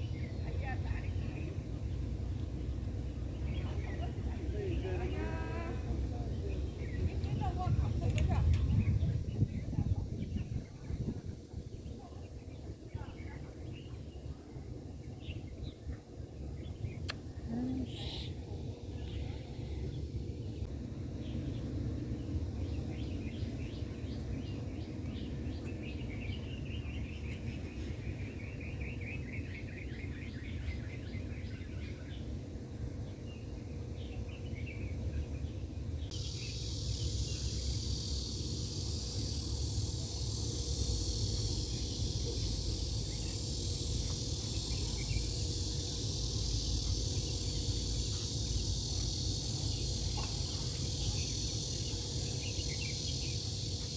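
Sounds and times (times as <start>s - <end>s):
birds chirping and trilling: 0.0s - 20.6s, 21.2s - 53.9s
high insect buzz: 36.0s - 53.9s.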